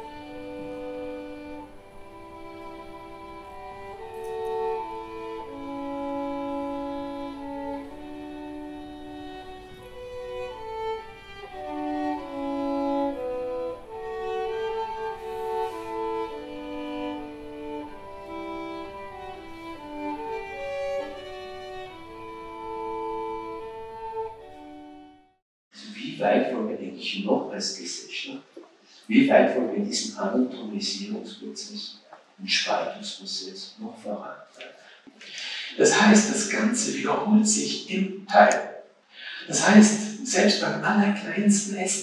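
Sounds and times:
bowed string music with violin: 0.0s - 25.4s.

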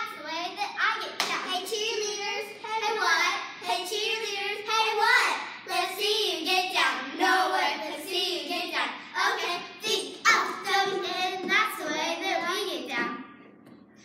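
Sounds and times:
girls chanting a cheer: 0.2s - 12.9s.

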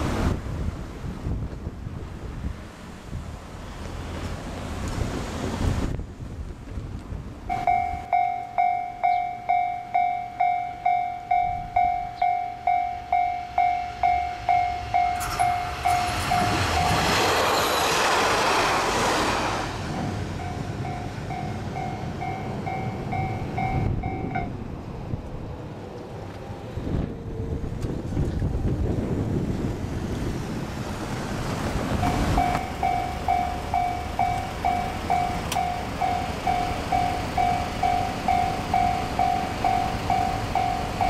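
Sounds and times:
diesel railcar passing: 0.0s - 41.0s
level crossing bell ringing: 7.5s - 17.2s, 20.4s - 24.4s, 32.1s - 41.0s.

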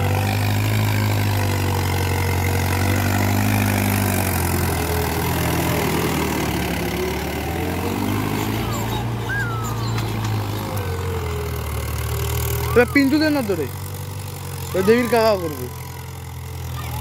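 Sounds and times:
tractor diesel engine under load: 0.0s - 17.0s.

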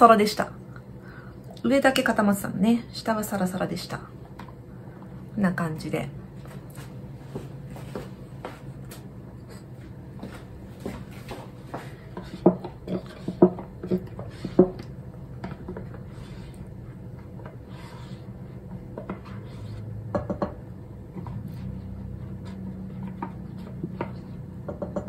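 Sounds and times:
spatula scraping a saucepan: 11.8s - 14.8s, 15.4s - 20.0s.

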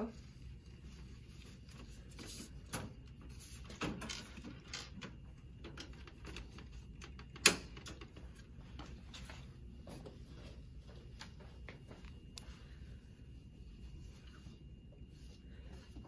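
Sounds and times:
sheet rustling: 0.0s - 4.3s.

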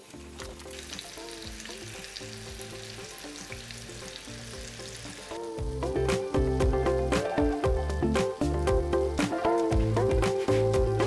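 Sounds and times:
fish sizzling in frying oil: 0.0s - 11.0s
quiet background music: 0.0s - 11.0s.

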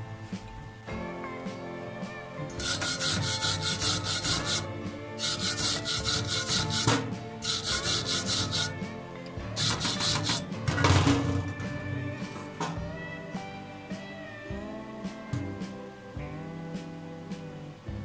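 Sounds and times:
background music: 0.0s - 18.0s
hand file rasping on steel: 2.6s - 8.8s, 9.6s - 10.5s.

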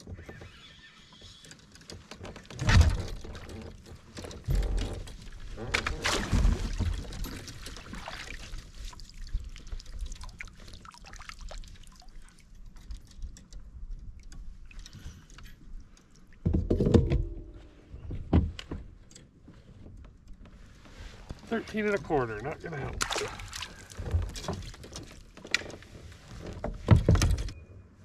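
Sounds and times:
net and gear rattling on kayak: 0.0s - 17.1s, 20.3s - 27.6s
water splashing: 5.2s - 12.6s, 21.8s - 25.2s.

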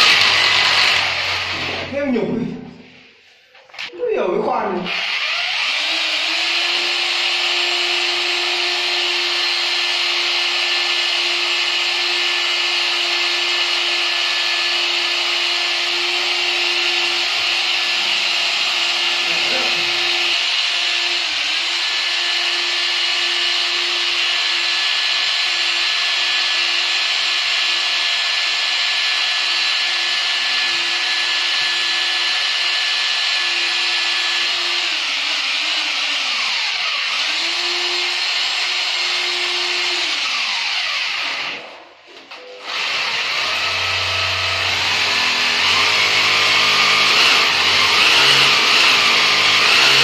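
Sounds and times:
power drill boring into tile: 0.0s - 1.9s, 4.9s - 50.0s.

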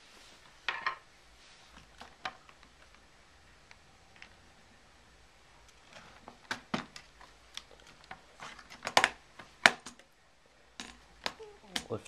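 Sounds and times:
plastic laptop case clicking: 5.7s - 10.1s.

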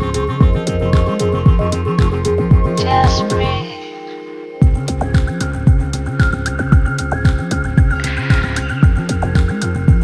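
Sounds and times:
electronic dance music: 7.8s - 9.6s.

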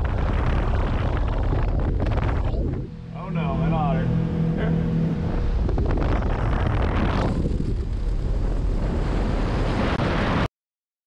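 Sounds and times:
motorboat engine hum: 0.0s - 9.8s
wind buffeting microphone: 0.0s - 10.5s.

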